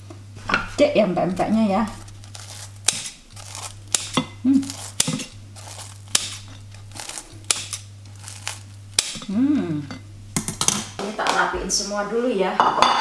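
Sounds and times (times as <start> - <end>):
steady low hum: 0.0 - 13.0
pieces knocking against bowl: 3.9 - 6.6.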